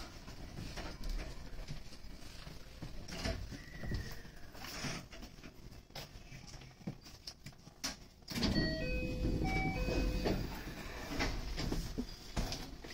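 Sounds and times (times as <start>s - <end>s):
electronic door chime: 8.4s - 10.6s.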